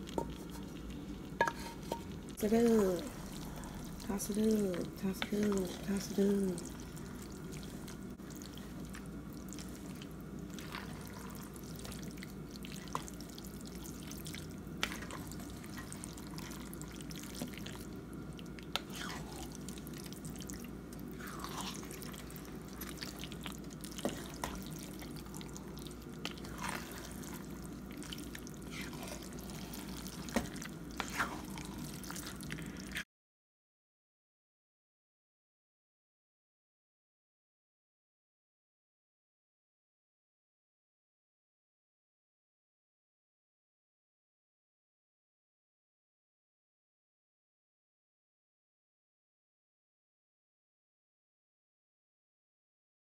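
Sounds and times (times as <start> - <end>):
steady low hum: 0.0 - 33.0
wet plops and squelches of stirring: 0.0 - 33.0.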